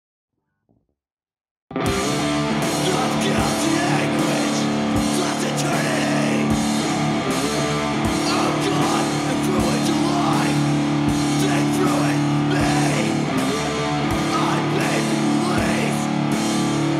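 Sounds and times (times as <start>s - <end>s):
electric guitar chords: 1.7s - 16.9s
punk rock band playing: 1.7s - 16.9s
drum hits: 1.9s - 16.8s.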